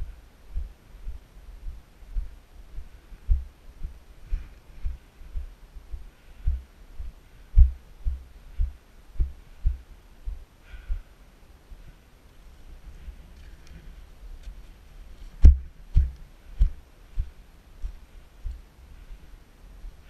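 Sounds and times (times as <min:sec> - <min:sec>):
muffled low thuds: 0:00.0 - 0:11.1, 0:15.2 - 0:18.7.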